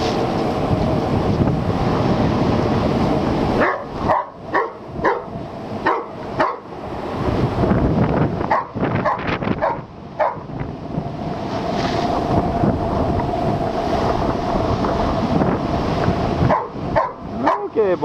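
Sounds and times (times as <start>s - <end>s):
waves surging against rocks: 0.0s - 18.0s
wind buffeting microphone: 0.0s - 18.0s
dog barking: 3.6s - 6.7s, 8.5s - 10.5s, 16.5s - 17.7s.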